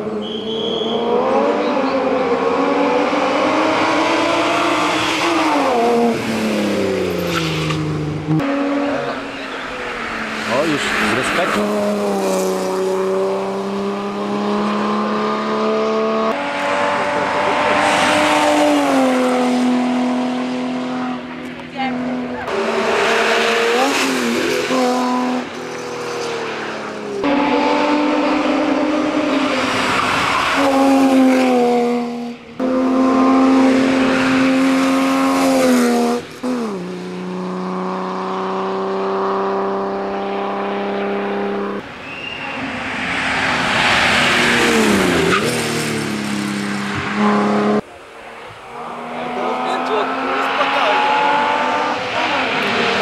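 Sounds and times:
race car engine revving: 0.0 - 53.0
tyre squeal: 0.1 - 1.2, 42.0 - 42.8.

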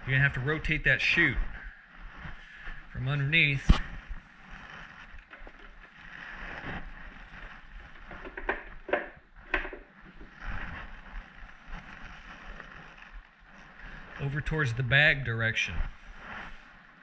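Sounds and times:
knocks and clunks of lawn mower: 8.2 - 9.9.

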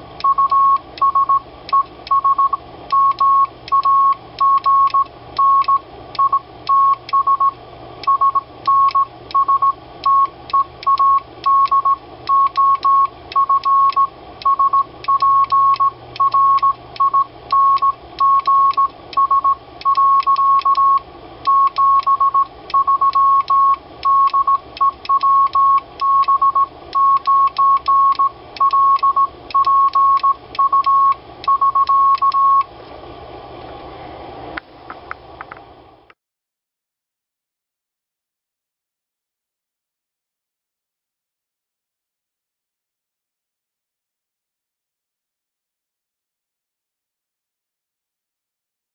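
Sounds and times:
morse code beeps: 0.2 - 32.7.

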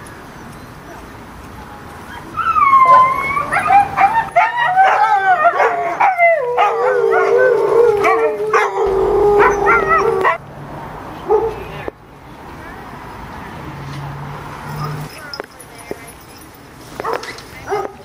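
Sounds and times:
dogs yipping: 2.1 - 10.4
dogs howling: 2.4 - 10.4.

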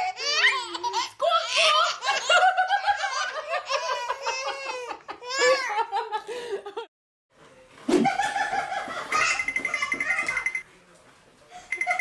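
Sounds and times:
babies laughing: 0.2 - 6.1, 8.1 - 10.6.

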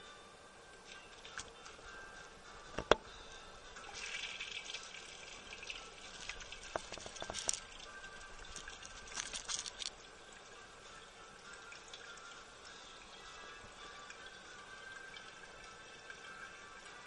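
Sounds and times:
faint music: 0.0 - 17.0
urinal flushing water: 3.8 - 10.8
light splashes and clicks: 3.9 - 10.1.

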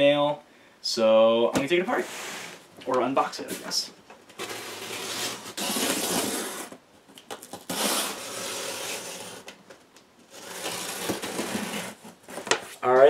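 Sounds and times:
packing tape ripping off box: 4.3 - 12.6.

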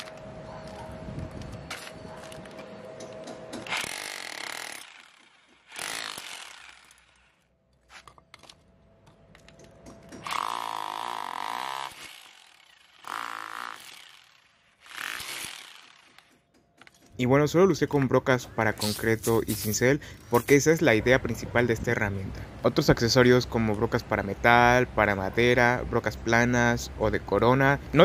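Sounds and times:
hammer drill chiselling brick: 3.5 - 7.4, 9.8 - 17.0.

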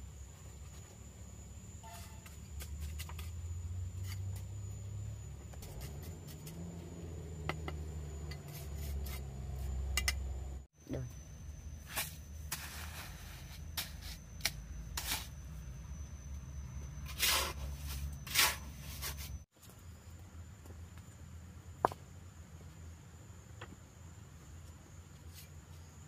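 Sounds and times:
trowel scraping soil: 5.6 - 6.8, 8.2 - 9.8, 11.8 - 15.4, 17.0 - 19.5.

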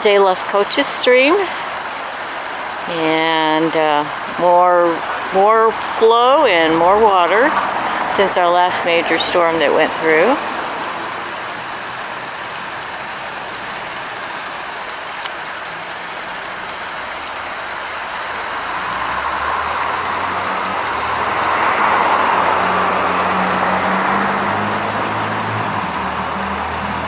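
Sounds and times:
stream water rushing over rocks: 0.0 - 27.0.

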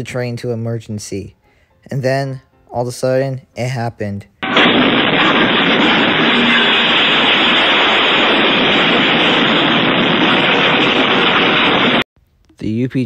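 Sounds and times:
loud static hiss: 4.4 - 12.0.

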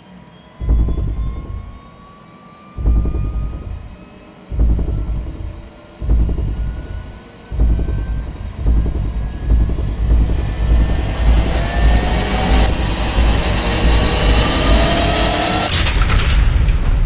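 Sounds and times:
turbine whine: 0.0 - 17.0
helicopter rotor beating: 0.6 - 2.1, 2.7 - 16.4.

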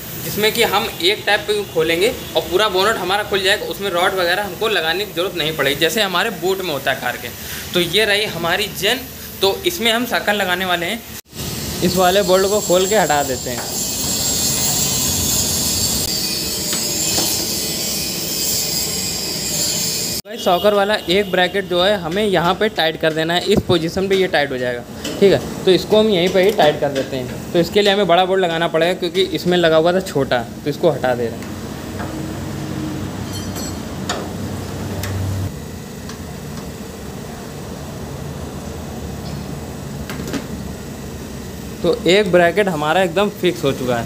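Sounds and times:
steady hissing noise: 0.0 - 15.0.

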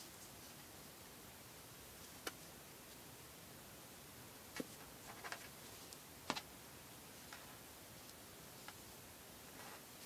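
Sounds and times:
steady low hiss: 0.0 - 10.0.

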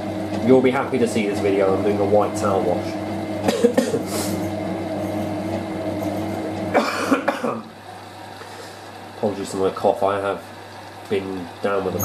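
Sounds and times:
washing machine motor humming: 0.0 - 12.0
person coughing: 3.4 - 4.4, 6.7 - 7.7.

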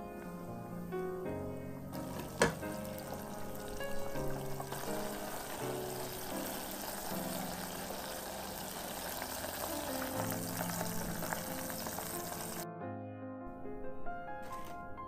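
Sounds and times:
background music: 0.0 - 15.0
deep-frying oil sizzle: 1.9 - 12.6, 14.4 - 14.8.

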